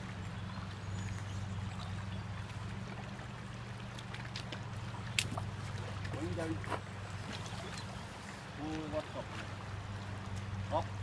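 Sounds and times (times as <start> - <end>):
low steady hum: 0.0 - 11.0
river water rushing: 0.0 - 11.0.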